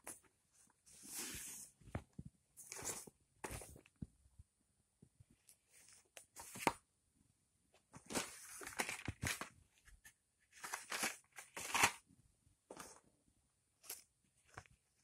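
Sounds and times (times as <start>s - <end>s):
magazines and packaging rustling: 1.0s - 4.0s, 8.0s - 12.0s.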